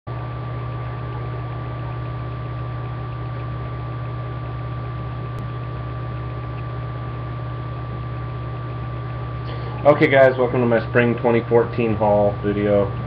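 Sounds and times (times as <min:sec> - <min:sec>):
low hum: 0:00.1 - 0:13.0.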